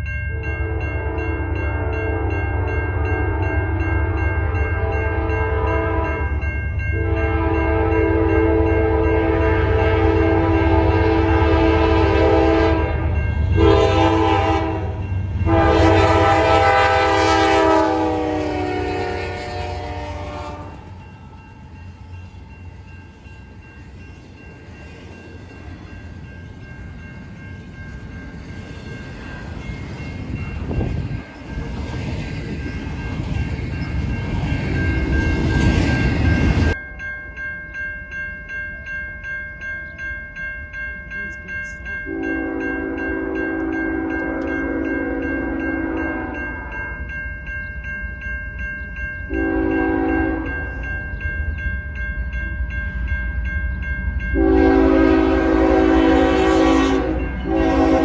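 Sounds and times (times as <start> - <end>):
locomotive air horn: 0.6 - 6.2, 7.0 - 20.9, 42.1 - 46.8, 49.3 - 50.6, 54.4 - 58.0.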